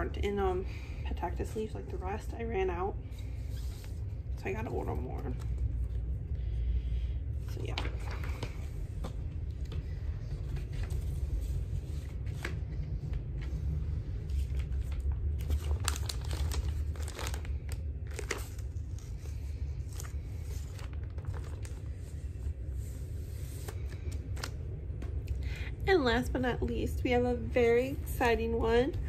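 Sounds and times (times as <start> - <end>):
steady low rumble: 0.0 - 29.0
album jacket rustling and crinkling: 7.5 - 25.2.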